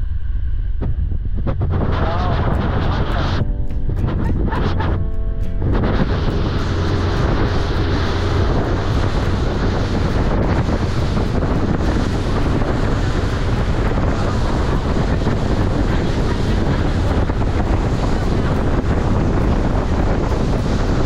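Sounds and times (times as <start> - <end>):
wind buffeting microphone: 0.0 - 21.0
water splashing along hull: 4.5 - 21.0.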